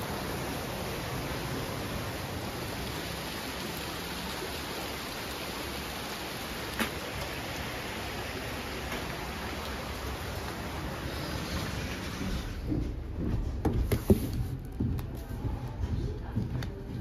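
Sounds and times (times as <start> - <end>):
running water hissing: 0.0 - 12.6.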